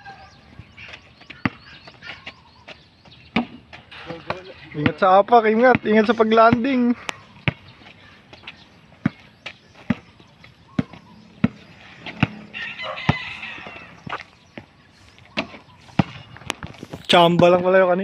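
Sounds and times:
rooster crowing: 0.0 - 0.4, 12.2 - 14.0
basketball bouncing on concrete: 1.2 - 2.0, 4.3 - 7.9, 9.0 - 14.7, 15.4 - 16.8.

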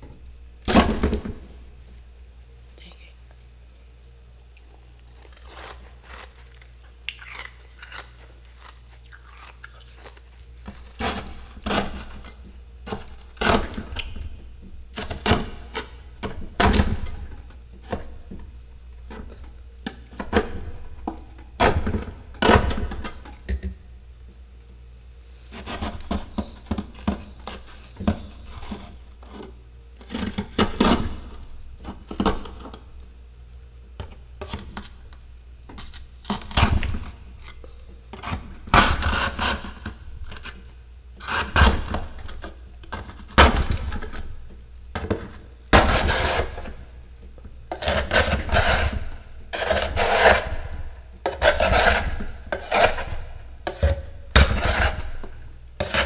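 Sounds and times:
metal spoon scraping ice: 47.8 - 50.6, 51.4 - 53.8.

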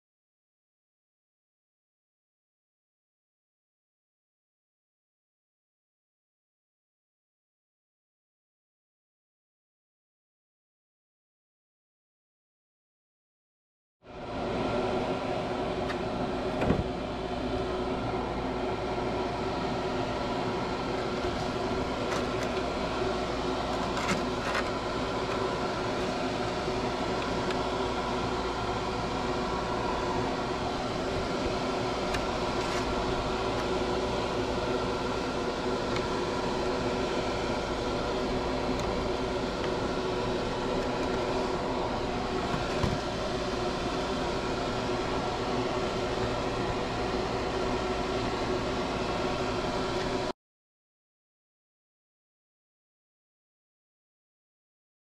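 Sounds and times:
extraction fan humming: 14.0 - 50.3.

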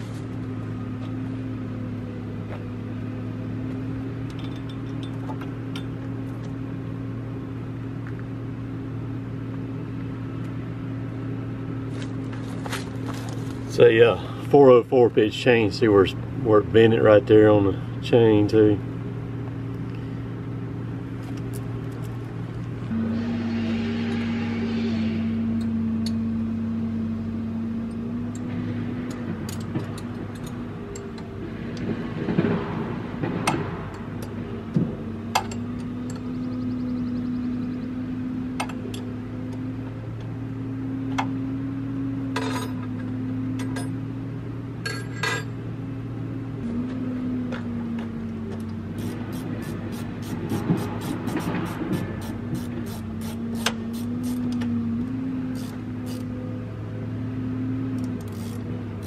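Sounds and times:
diesel engine idling: 0.0 - 33.4, 45.6 - 59.0.

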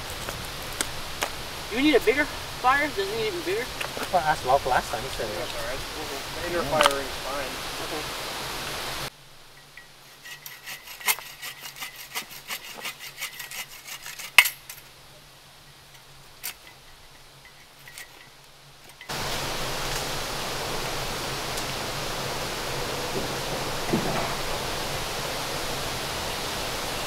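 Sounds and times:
steady hiss: 0.0 - 27.0
stones and wood knocking: 23.2 - 24.6.

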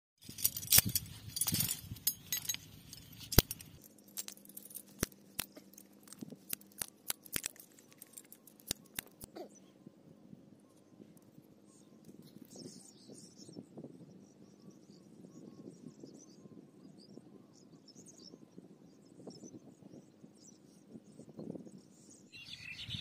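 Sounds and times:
chain links clinking: 0.2 - 9.2.

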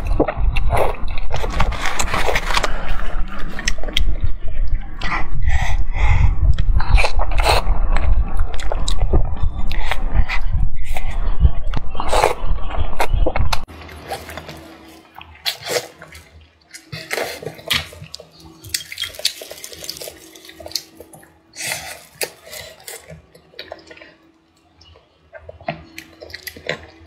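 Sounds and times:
slurping and chewing noodles: 6.5 - 11.2, 13.6 - 27.0
soft chewing with smacks: 13.0 - 27.0.

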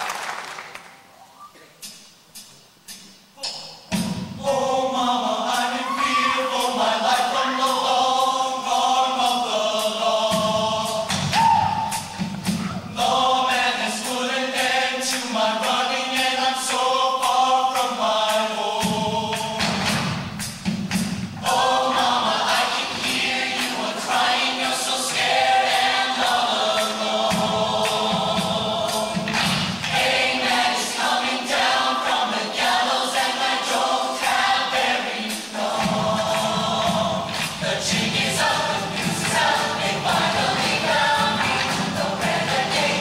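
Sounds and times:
choir singing in harmony: 3.9 - 43.0
instrumental accompaniment: 6.4 - 43.0.

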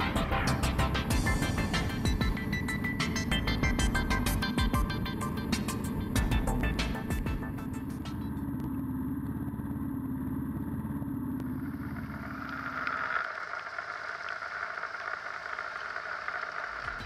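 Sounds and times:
motorcycle engine idling: 0.0 - 12.8
engine and road sound: 0.0 - 14.8.

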